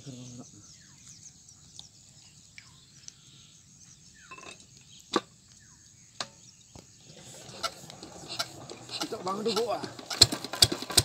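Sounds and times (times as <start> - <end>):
faint bird chirps: 0.0 - 7.7
sharp clicks on engine: 7.4 - 11.0.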